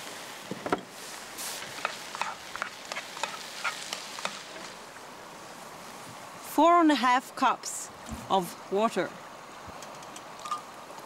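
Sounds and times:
food sizzling in a pot: 0.0s - 6.0s.

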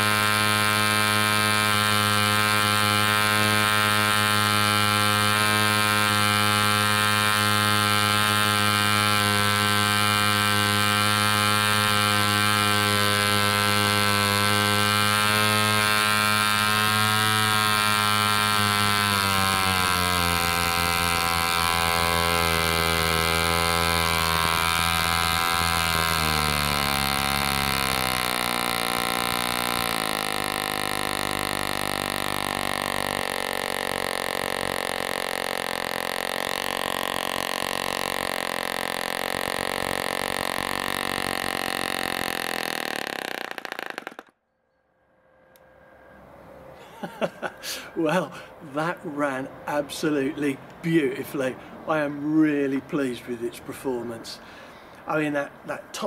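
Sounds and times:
model engine running: 0.0s - 44.3s.

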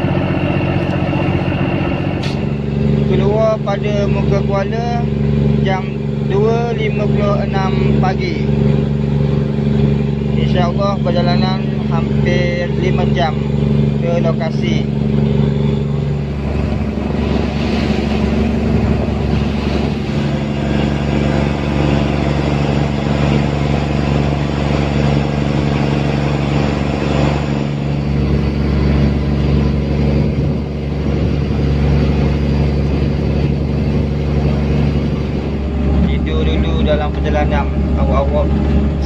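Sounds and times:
boat engine droning: 0.0s - 39.0s
steady rushing noise: 0.0s - 39.0s.

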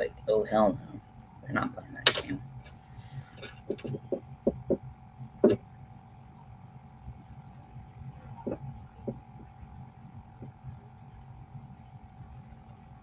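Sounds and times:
electrical hum: 0.0s - 13.0s
soft knocks: 3.6s - 4.8s, 5.4s - 5.6s.

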